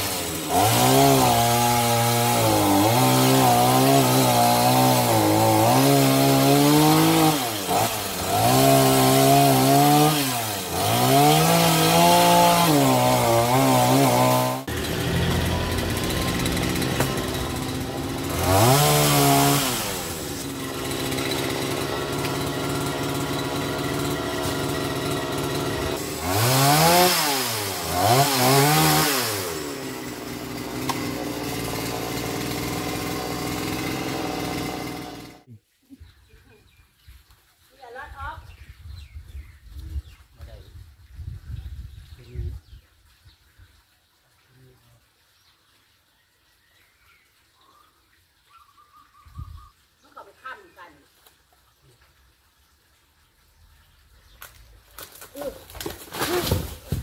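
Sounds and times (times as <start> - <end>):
chainsaw cutting branches: 0.0 - 35.5, 54.4 - 57.0.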